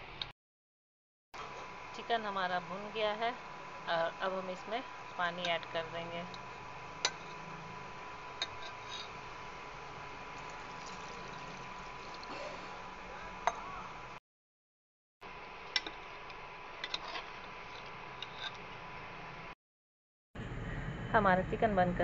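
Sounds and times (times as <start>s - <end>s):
cooktop high whine: 1.4s - 14.2s, 15.2s - 19.6s
pressure cooker hissing: 1.4s - 14.2s.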